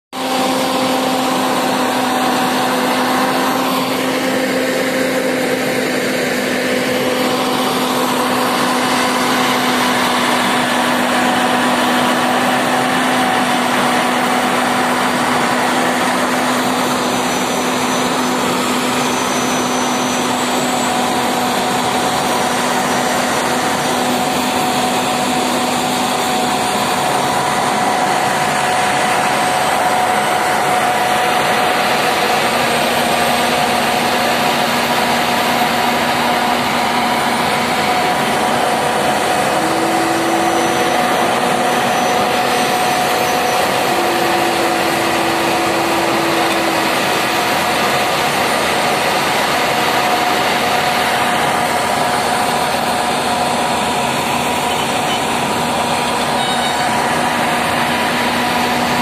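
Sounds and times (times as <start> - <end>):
paving machine engine drone: 0.0 - 59.0
steady whining tone: 0.2 - 59.0.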